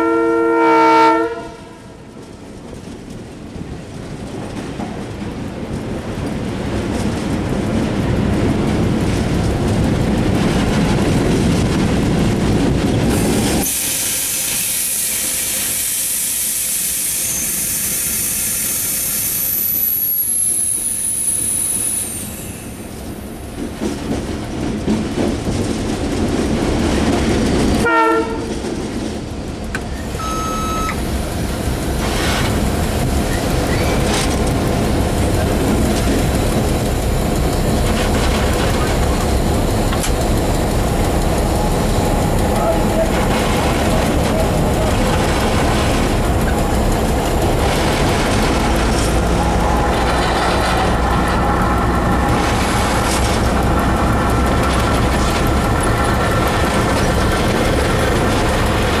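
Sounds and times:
diesel locomotive engine rumble: 0.0 - 59.0
wheels on track: 1.3 - 59.0
high hiss: 13.2 - 23.1
high-pitched squeal: 13.4 - 23.0
brief pitched tones: 30.0 - 31.0.

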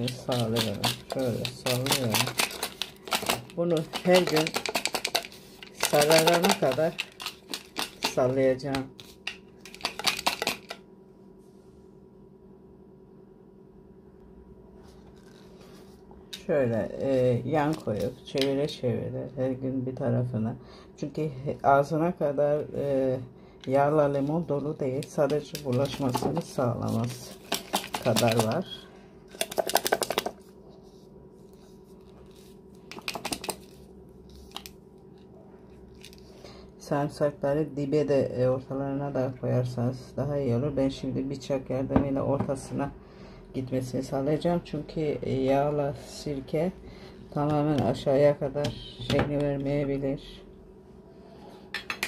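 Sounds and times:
glass jar rattling when shaken: 0.0 - 8.2
jar clicking and rattling: 0.0 - 10.8, 25.0 - 28.6, 29.3 - 30.4, 32.9 - 33.8
faint steady hum: 0.0 - 52.0.

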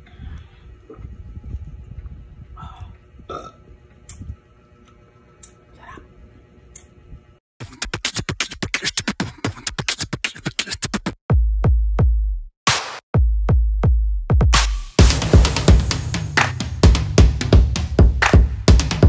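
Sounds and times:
heavy deep bass hits: 13.2 - 19.0
fast drum-machine roll: 14.4 - 19.0.

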